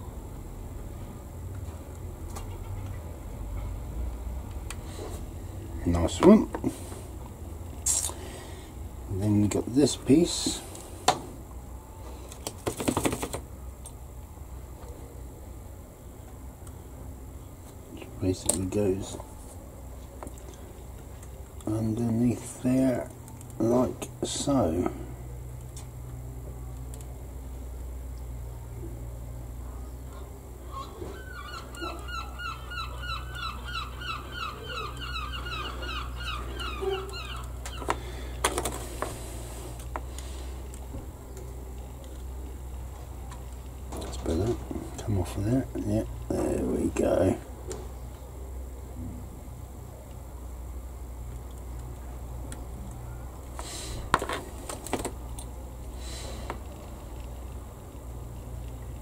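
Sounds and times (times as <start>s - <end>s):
steady low hum: 0.0s - 59.0s
plastic parts clicking and knocking: 12.3s - 13.4s
bird calling repeated notes: 30.1s - 38.1s.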